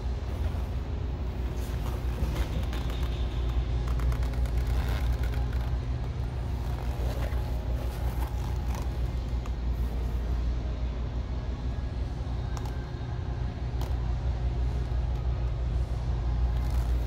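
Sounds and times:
low droning hum: 0:00.0 - 0:17.0
faint clicks and rustles: 0:01.5 - 0:09.7.

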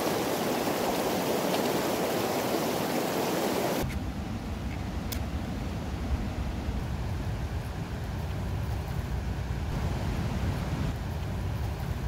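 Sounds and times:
stream rushing over rocks: 0:00.0 - 0:03.8.

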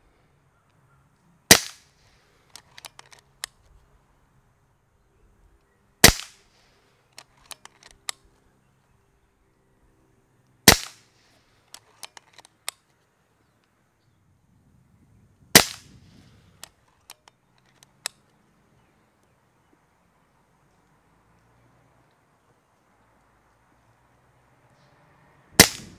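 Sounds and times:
air rifle shots: 0:01.5 - 0:02.0, 0:06.0 - 0:06.5, 0:10.6 - 0:11.1, 0:15.5 - 0:16.2, 0:25.6 - 0:25.9
rifle action clicks: 0:02.5 - 0:03.7, 0:07.2 - 0:08.3, 0:11.7 - 0:12.8.

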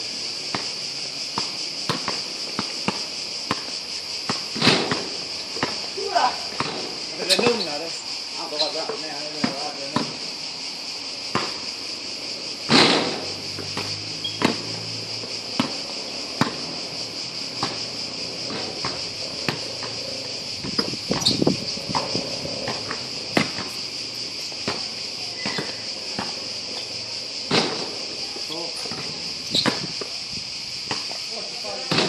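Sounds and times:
high insect drone: 0:00.0 - 0:32.0
basketball bouncing on court: 0:04.3 - 0:05.8, 0:06.5 - 0:06.9, 0:16.4 - 0:16.7.

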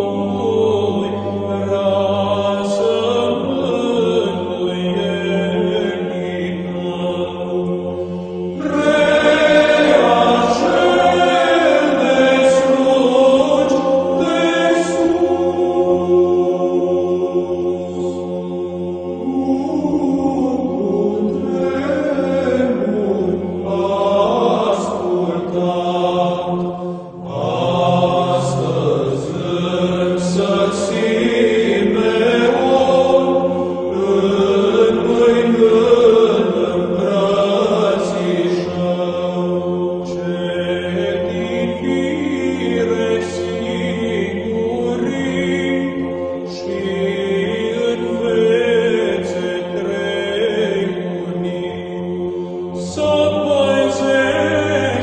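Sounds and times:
voices chanting slow melody: 0:00.0 - 0:55.0
held drone note: 0:07.5 - 0:37.4.

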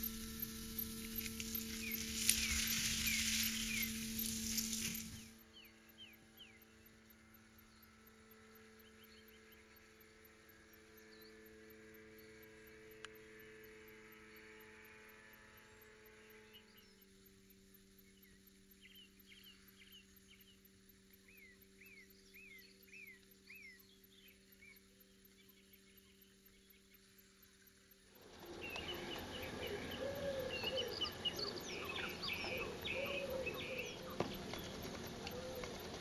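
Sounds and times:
bird chirps: 0:00.0 - 0:07.0, 0:18.0 - 0:27.0, 0:28.2 - 0:36.0
faint electrical hum: 0:00.0 - 0:36.0.

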